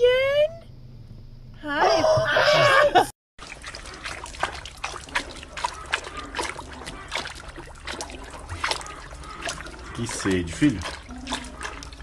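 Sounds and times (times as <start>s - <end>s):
puppy splashing in bucket: 3.4s - 12.0s.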